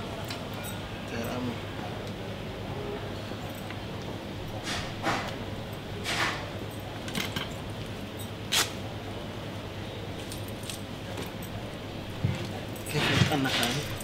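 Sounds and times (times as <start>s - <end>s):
small metallic clinks: 0.2s - 1.6s, 10.2s - 14.0s.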